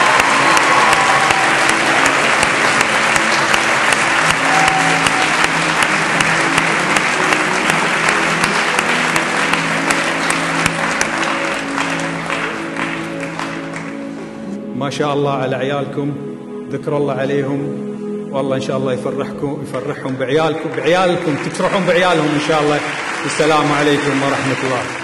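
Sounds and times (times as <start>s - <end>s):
large crowd applauding: 0.0s - 14.3s, 20.0s - 25.0s
background music: 0.0s - 25.0s.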